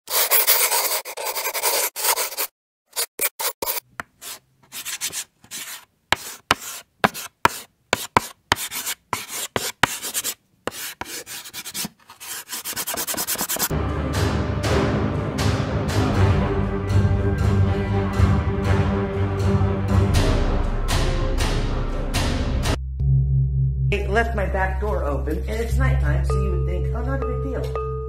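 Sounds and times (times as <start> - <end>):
marker scratching on board: 0.1 - 13.7
music with low drum: 13.7 - 24.2.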